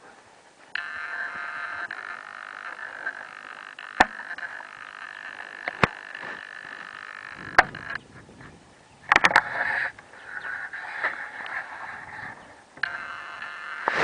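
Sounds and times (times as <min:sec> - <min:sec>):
frog buzzing trill: 0:00.7 - 0:08.1, 0:09.1 - 0:14.0
sharp clicks: 0:00.7 - 0:08.1, 0:09.1 - 0:11.6.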